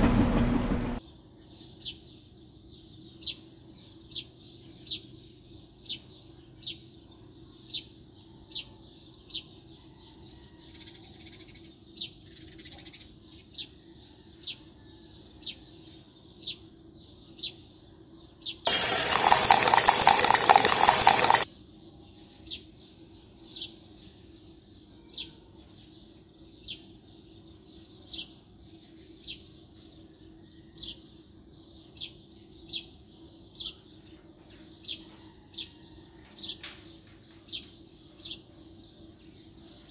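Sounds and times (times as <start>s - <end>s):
harsh rattling mechanical noise: 0.0s - 1.0s, 18.7s - 21.5s.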